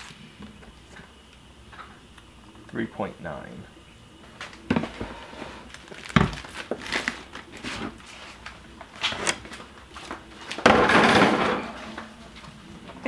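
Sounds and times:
plastic bags crinkling: 0:05.6 - 0:08.5
plastic tub clattering: 0:10.5 - 0:11.9.

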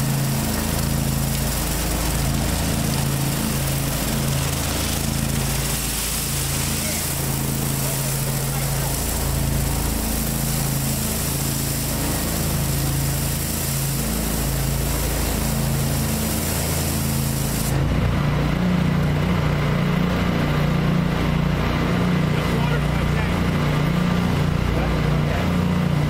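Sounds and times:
water spray hissing on concrete: 0:00.0 - 0:17.9
pressure washer engine running: 0:00.0 - 0:26.0.

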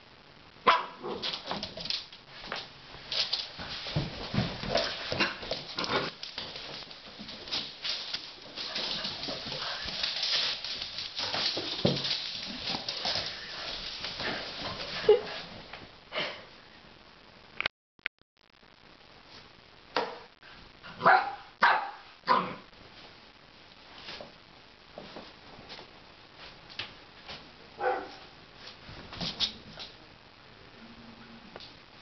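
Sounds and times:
broom bristles scraping floor: 0:01.1 - 0:15.5
broom knocks: 0:08.7 - 0:13.3.

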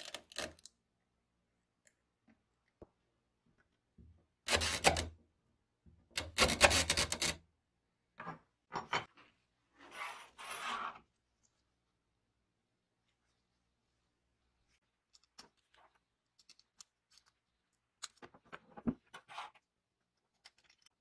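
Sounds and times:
tape dispenser clicking and rasping: 0:04.5 - 0:05.1.

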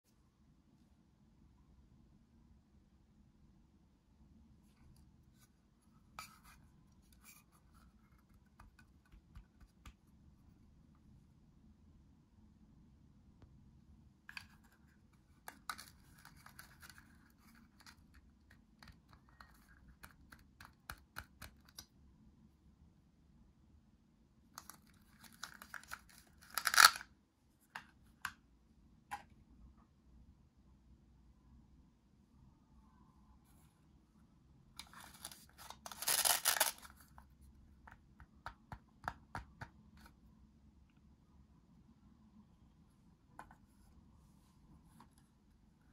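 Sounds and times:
plastic toy pieces clicking: 0:25.3 - 0:27.0, 0:35.0 - 0:36.9.

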